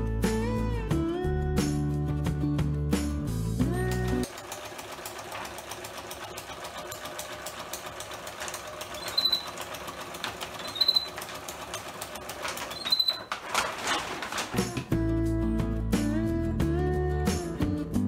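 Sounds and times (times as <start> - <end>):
sewing machine running: 4.0 - 14.8.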